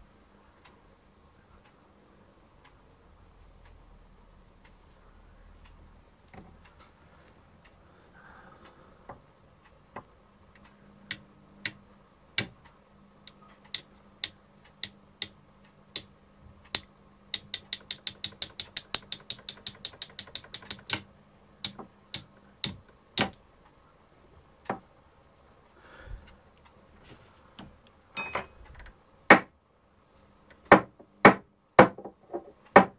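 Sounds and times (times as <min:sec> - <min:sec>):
screwdriver tapping on metal: 0:12.4 - 0:12.6, 0:16.7 - 0:21.0, 0:21.6 - 0:23.4.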